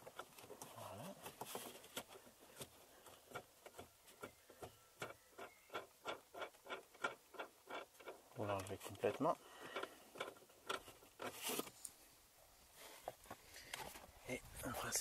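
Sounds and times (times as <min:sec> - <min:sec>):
wing nut ticking and clicking: 0:02.0 - 0:11.3.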